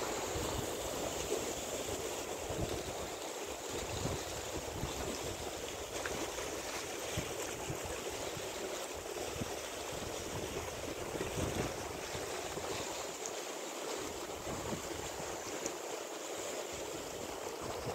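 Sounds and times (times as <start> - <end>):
choppy sea water washing: 0.0 - 17.9
wind buffeting microphone: 9.4 - 12.8, 14.4 - 15.2.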